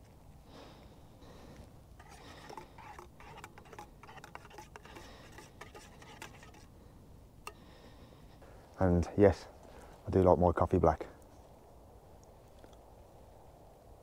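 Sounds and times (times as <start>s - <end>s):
spoon scraping and clinking metal pot: 2.0s - 6.7s.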